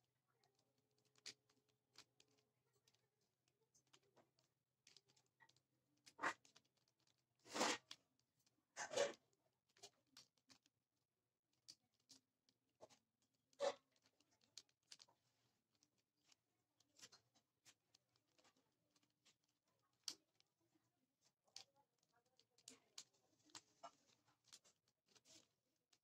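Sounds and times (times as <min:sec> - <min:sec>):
plastic rasping scrapes: 0:06.0 - 0:08.0, 0:08.8 - 0:10.7.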